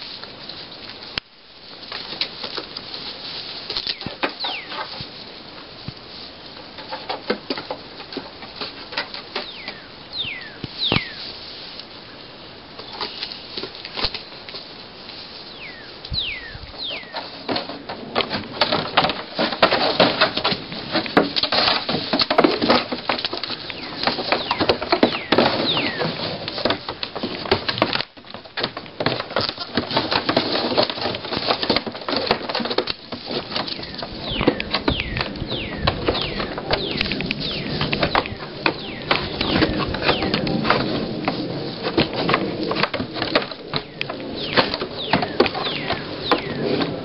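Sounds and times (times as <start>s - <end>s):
hooves clattering on wooden boards: 1.9s - 11.3s, 15.7s - 47.0s
bird whistled calls: 9.4s - 11.2s, 15.5s - 17.2s, 23.8s - 26.0s, 33.8s - 40.3s, 43.8s - 46.6s.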